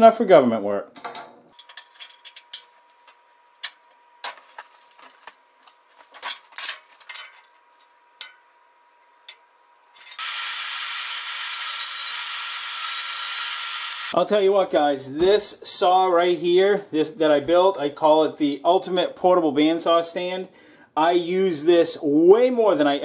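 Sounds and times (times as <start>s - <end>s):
bandsaw running: 10.1s - 14.2s.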